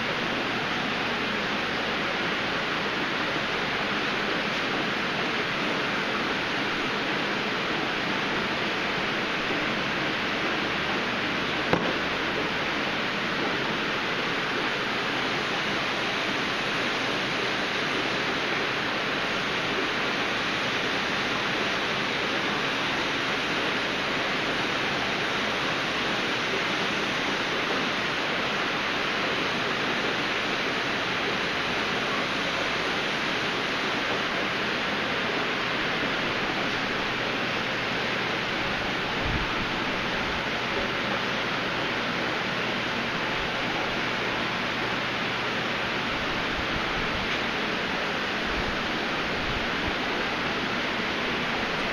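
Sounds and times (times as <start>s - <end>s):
aquarium water rushing: 0.0s - 51.9s.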